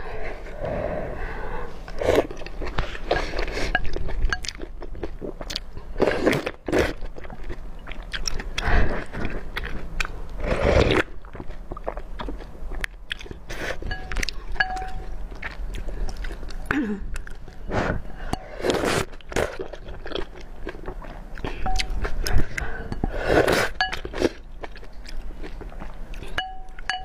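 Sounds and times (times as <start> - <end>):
slurping noodle soup: 0.3 - 4.0, 10.4 - 11.1, 17.6 - 19.8, 21.1 - 24.4
biting and chewing: 1.8 - 17.7, 18.4 - 27.0.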